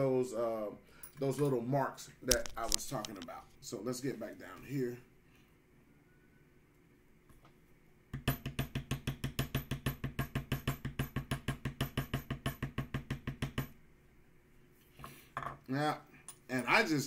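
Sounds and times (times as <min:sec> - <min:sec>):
mallet tapping stamping tool: 0:08.1 - 0:13.8.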